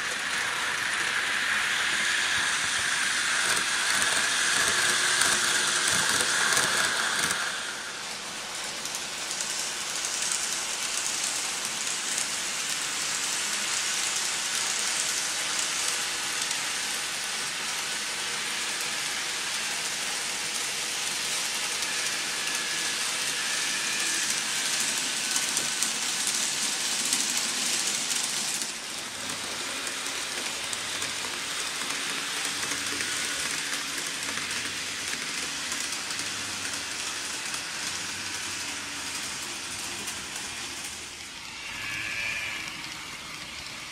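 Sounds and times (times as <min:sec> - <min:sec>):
model train wheels clattering on rails: 0:00.0 - 0:43.9.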